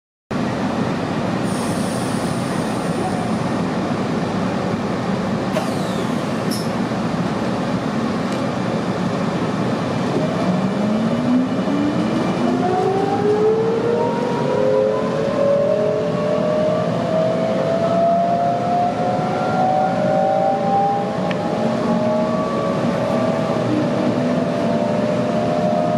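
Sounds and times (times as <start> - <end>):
electric train hum: 0.4 - 25.9
traction motors whining: 5.5 - 6.8.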